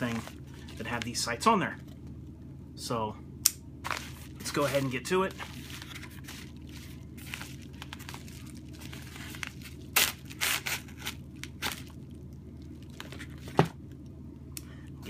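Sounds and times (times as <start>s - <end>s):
paper crinkling and tearing: 3.9s - 12.0s.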